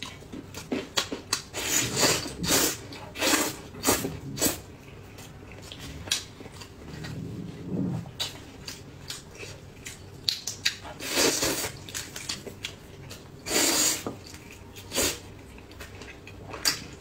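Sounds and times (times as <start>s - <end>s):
wet chewing: 0.0s - 13.3s.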